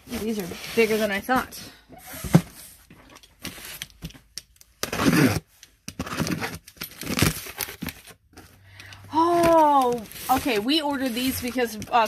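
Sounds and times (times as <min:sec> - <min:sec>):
packaging crinkling and rustling: 0:03.2 - 0:08.4.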